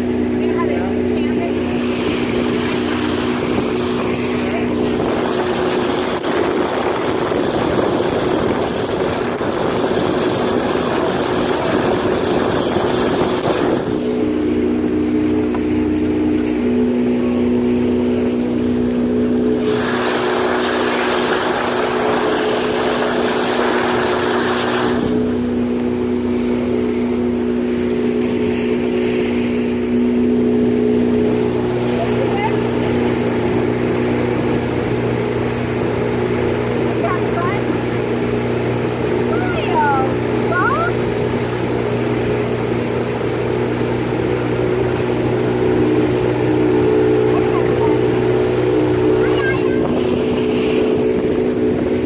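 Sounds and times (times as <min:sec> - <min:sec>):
motorboat engine running: 0:00.0 - 0:52.0
rushing wind and water spray: 0:00.0 - 0:52.0.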